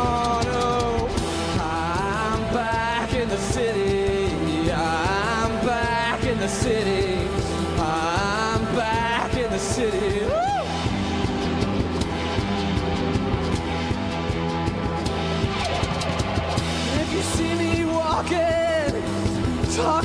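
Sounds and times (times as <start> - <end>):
man singing: 0.0 - 10.8, 16.8 - 20.0
bass guitar: 0.0 - 20.0
drums: 0.0 - 20.0
electric guitar: 0.0 - 20.0.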